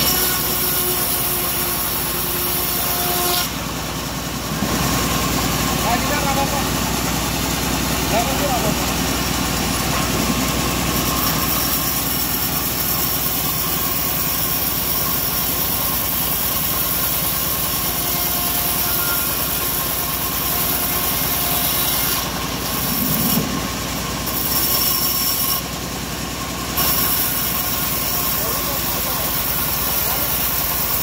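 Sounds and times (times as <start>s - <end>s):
bandsaw cutting wood: 0.0s - 3.6s, 9.8s - 25.7s, 26.7s - 31.0s.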